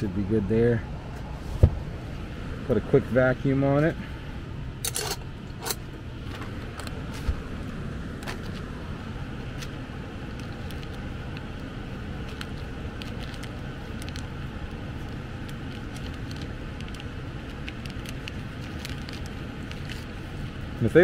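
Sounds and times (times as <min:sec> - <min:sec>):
low background rumble: 0:00.0 - 0:21.0
plastic bag crinkling: 0:12.2 - 0:20.2.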